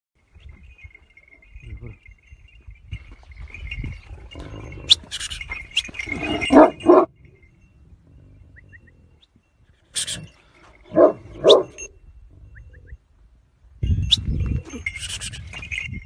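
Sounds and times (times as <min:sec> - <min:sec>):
dog barking: 0:06.5 - 0:07.1, 0:10.9 - 0:11.8.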